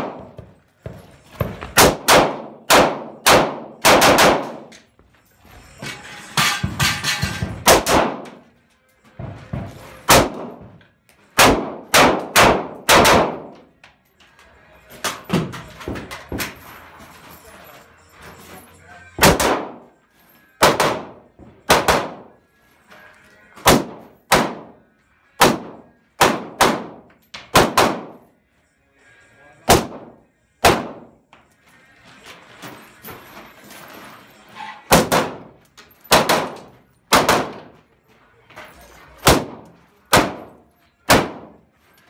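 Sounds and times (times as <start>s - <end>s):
rifle shots echoing: 1.8s - 4.7s, 7.7s - 8.4s, 10.1s - 10.6s, 11.4s - 13.6s, 19.2s - 19.8s, 20.6s - 22.3s, 23.7s - 24.8s, 25.4s - 28.2s, 29.7s - 31.2s, 34.9s - 35.5s, 36.1s - 37.8s, 39.2s - 41.6s.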